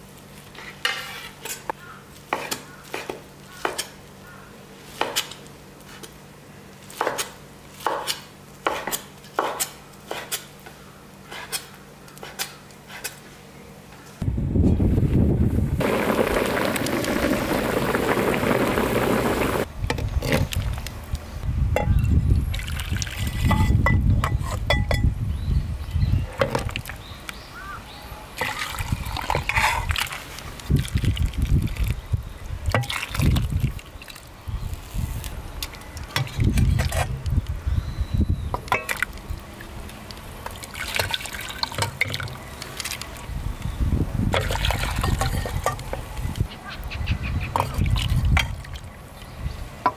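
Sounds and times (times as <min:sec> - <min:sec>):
broth bubbling at a boil: 0:15.8 - 0:19.7, 0:22.4 - 0:23.6, 0:28.4 - 0:32.0, 0:32.6 - 0:34.3, 0:38.5 - 0:43.3, 0:44.3 - 0:45.9
broth pouring into bowls: 0:15.8 - 0:19.7.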